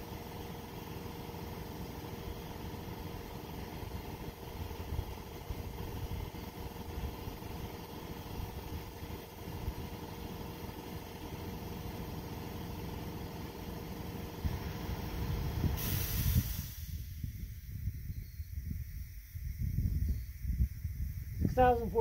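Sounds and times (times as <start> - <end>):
low machine hum: 0.0 - 15.8
hiss of escaping air: 14.4 - 21.4.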